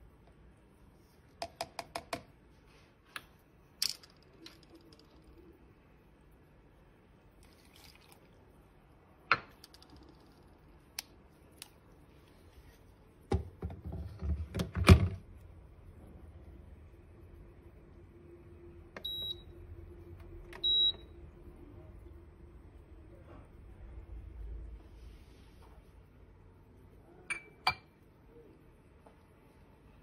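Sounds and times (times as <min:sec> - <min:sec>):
spoon tapping metal pot: 0:27.3 - 0:27.9.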